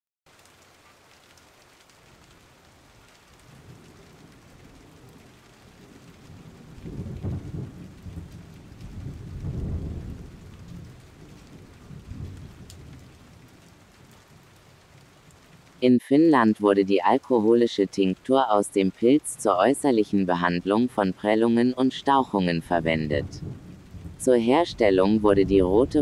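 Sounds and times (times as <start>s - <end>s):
steady rain: 0.3s - 26.0s
rolling thunder: 3.5s - 13.6s, 23.0s - 26.0s.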